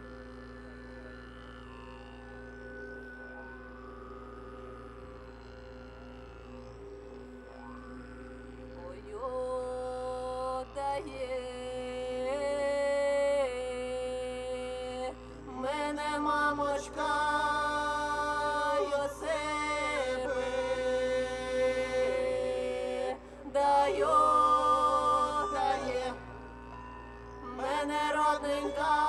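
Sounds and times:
low drone: 0:00.0 - 0:29.0
group of voices singing folk song: 0:15.5 - 0:26.4, 0:27.5 - 0:29.0.

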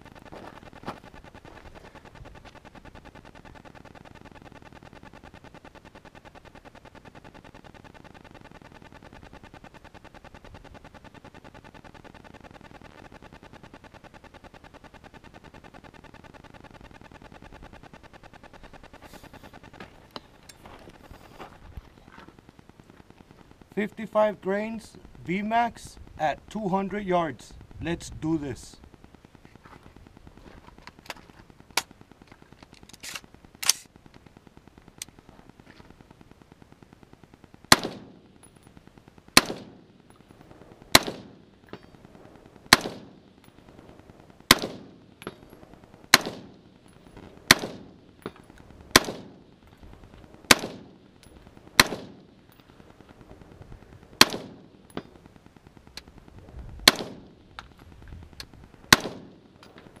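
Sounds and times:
rifle shots with echo: 0:37.7 - 0:38.4, 0:39.4 - 0:39.9, 0:40.7 - 0:41.5, 0:42.6 - 0:43.2, 0:44.5 - 0:45.4, 0:46.1 - 0:49.5, 0:50.4 - 0:52.5, 0:54.2 - 0:55.2, 0:56.8 - 0:57.5, 0:58.8 - 0:59.6.

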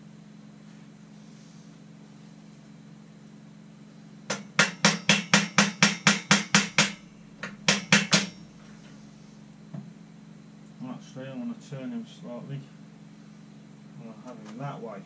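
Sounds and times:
hammer tapping a pin: 0:04.3 - 0:08.4.

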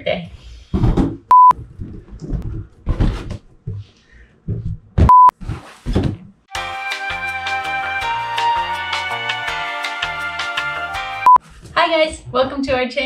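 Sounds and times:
censor bleep: 0:01.3 - 0:01.5, 0:05.1 - 0:05.3
music: 0:06.5 - 0:13.0.

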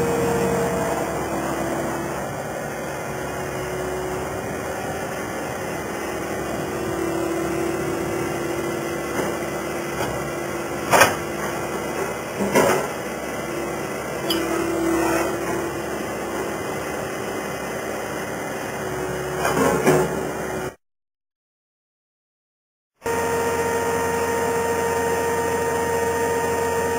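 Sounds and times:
loader engine running: 0:00.0 - 0:20.8, 0:23.0 - 0:26.9
sharp metal clanks: 0:14.3 - 0:14.7.

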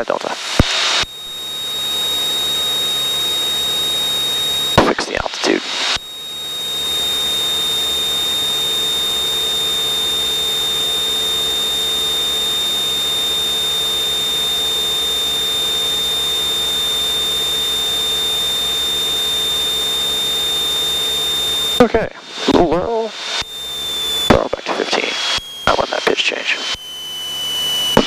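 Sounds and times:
high-pitched electronic whine: 0:00.0 - 0:28.0.

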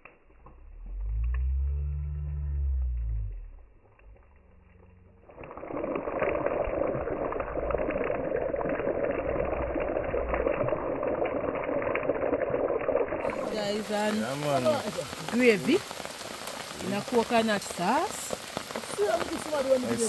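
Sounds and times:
heavy rain falling: 0:13.2 - 0:20.0.

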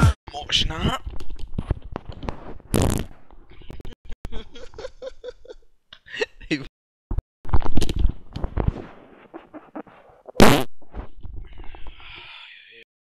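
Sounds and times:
person farting: 0:02.7 - 0:03.1, 0:09.3 - 0:10.7.

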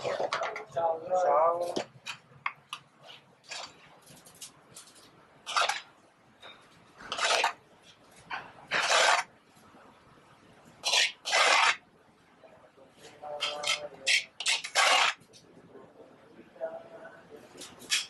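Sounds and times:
metal spoon scraping frying pan: 0:05.4 - 0:05.9, 0:06.5 - 0:07.6, 0:08.7 - 0:09.3, 0:10.8 - 0:11.8, 0:13.4 - 0:15.2.

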